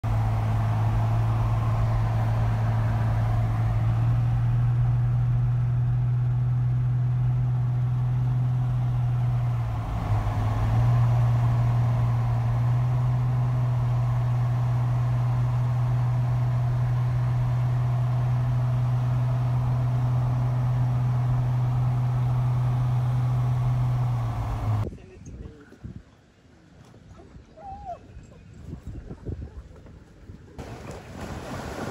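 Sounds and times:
car road and engine noise: 0.0s - 24.9s.

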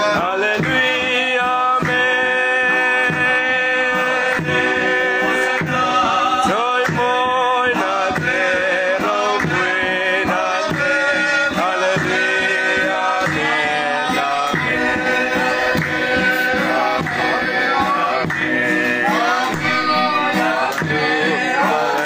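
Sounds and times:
hand-clapping: 0.0s - 22.0s
man singing: 0.0s - 22.0s
strummed acoustic guitar: 0.0s - 22.0s
woman singing: 13.3s - 22.0s.

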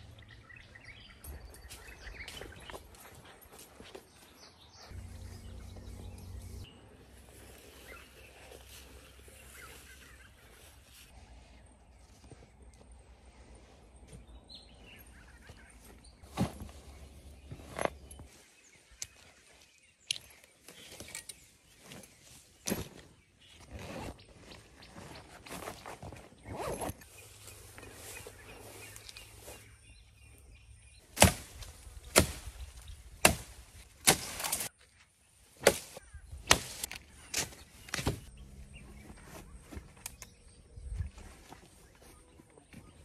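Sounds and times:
wire rustling and clinking in grass: 24.1s - 41.8s
machete chopping branches: 31.1s - 34.7s, 35.6s - 38.3s.

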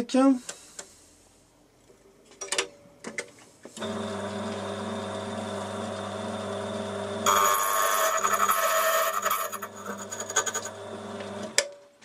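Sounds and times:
key-cutting machine motor hum: 3.8s - 11.6s
cutter grinding key blank: 6.8s - 11.6s.

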